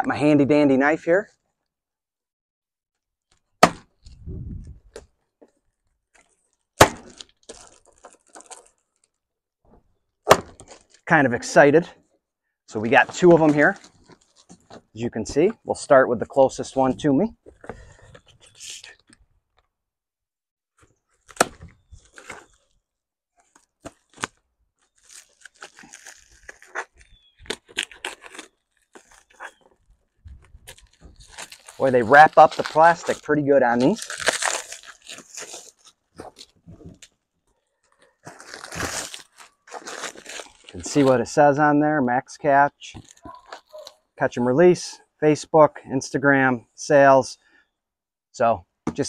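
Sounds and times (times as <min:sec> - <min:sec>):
cardboard and tape crackling: 0:05.8 - 0:09.2, 0:10.4 - 0:11.0, 0:13.1 - 0:14.8, 0:21.1 - 0:22.8, 0:23.4 - 0:41.2, 0:43.0 - 0:44.0
plastic wrapping tearing and crinkling: 0:06.2 - 0:09.2, 0:13.5 - 0:14.8, 0:21.1 - 0:22.8, 0:23.4 - 0:41.2.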